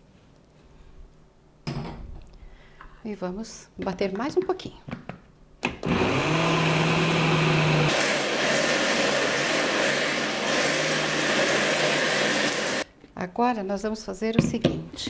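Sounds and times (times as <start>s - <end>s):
blender whirring: 5.8s - 12.9s.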